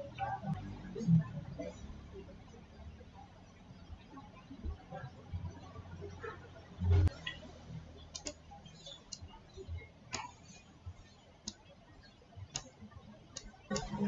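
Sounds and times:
computer mouse clicking: 8.1 - 9.3, 12.5 - 14.0.

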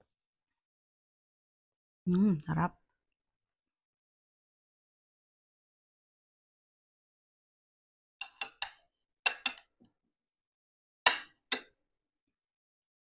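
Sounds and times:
cutlery clinking on ceramic dishes: 8.2 - 9.7, 11.1 - 11.8.

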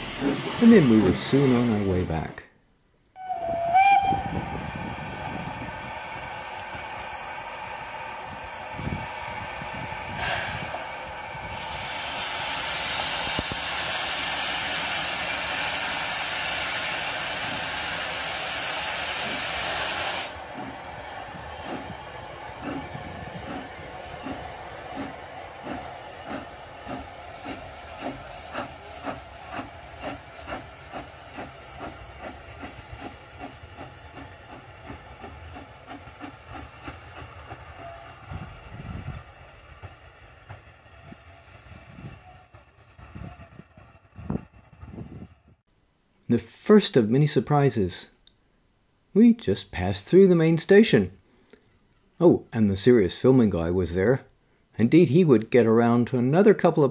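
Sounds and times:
steam hissing: 0.0 - 2.4, 3.2 - 44.3
steam locomotive chuffing: 0.0 - 2.4, 3.2 - 45.4.

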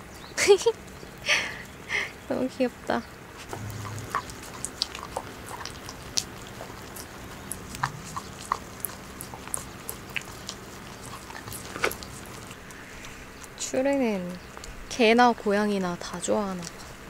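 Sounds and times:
dog licking and smacking: 3.5 - 12.8.

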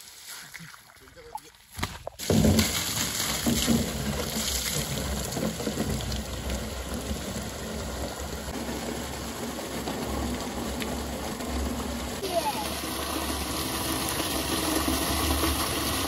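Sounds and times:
water gushing into plastic drum: 2.1 - 16.0.

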